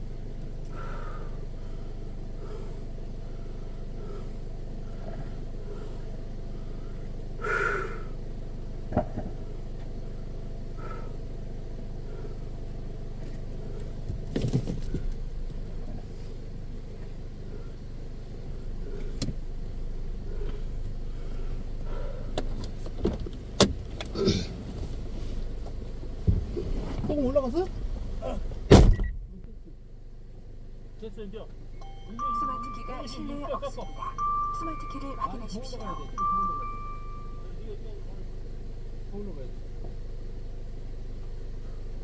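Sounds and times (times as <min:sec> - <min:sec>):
car engine idling: 0:00.0 - 0:42.0
sharp knocks and thumps: 0:08.9 - 0:09.4.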